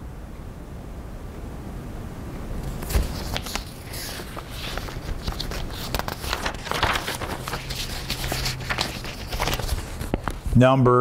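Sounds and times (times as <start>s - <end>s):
paper rustling: 2.6s - 10.6s.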